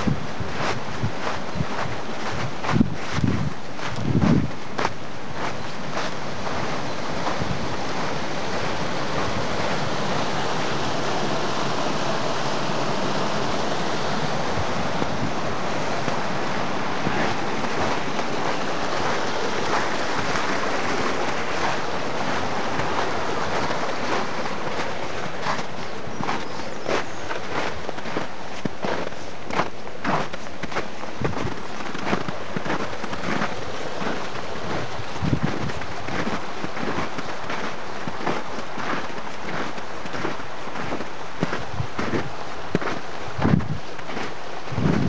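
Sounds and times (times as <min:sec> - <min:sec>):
brook rushing over stones: 0:00.0 - 0:45.0.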